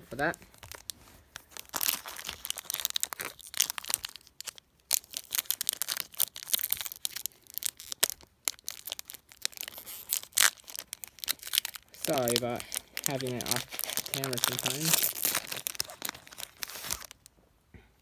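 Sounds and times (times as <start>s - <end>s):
foil wrapper crinkling and tearing: 0.2s - 17.3s.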